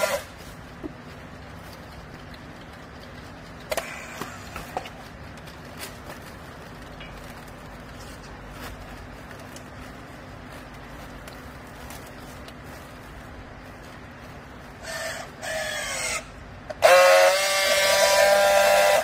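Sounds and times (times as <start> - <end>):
sharp clicks and knocks: 0.8 - 8.3.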